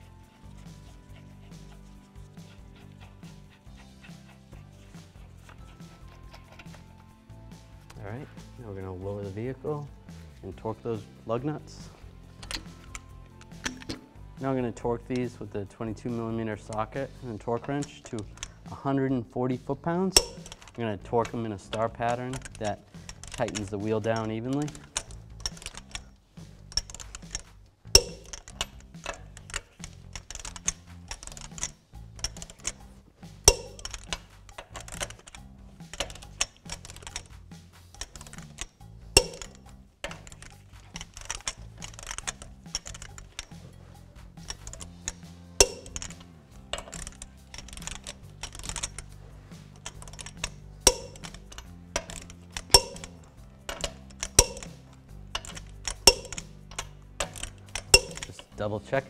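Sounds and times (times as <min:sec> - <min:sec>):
torque wrench ratcheting clicks: 0:12.4 - 0:18.9, 0:20.0 - 0:58.5
loud sharp wrench click: 0:20.2 - 0:26.0, 0:26.7 - 0:32.8, 0:33.5 - 0:37.3, 0:37.9 - 0:43.6, 0:44.4 - 0:49.1, 0:49.7 - 0:58.4.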